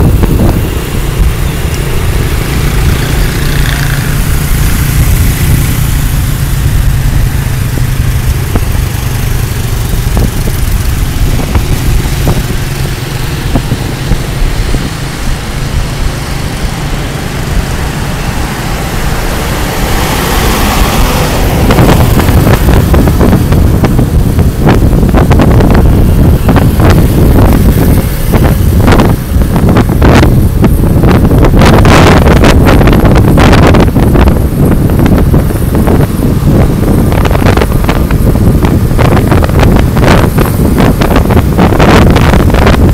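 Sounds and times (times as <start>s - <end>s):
light traffic: 0.0s - 42.9s
motor scooter engine: 0.0s - 42.9s
wind buffeting microphone: 0.0s - 42.9s.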